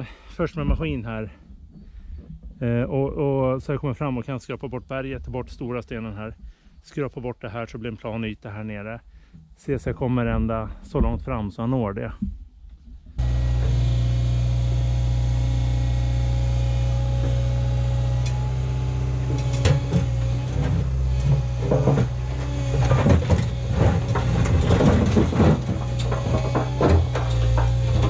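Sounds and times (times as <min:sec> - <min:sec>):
excavator diesel engine running: 0:13.2 - 0:28.0
bucket scraping over rock: 0:17.2 - 0:28.0
bucket clunks: 0:19.2 - 0:28.0.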